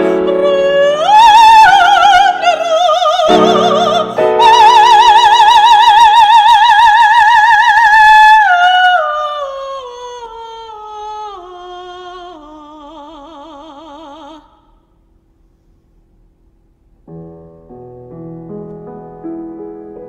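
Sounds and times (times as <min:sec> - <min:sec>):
operatic soprano singing: 0:00.0 - 0:14.7.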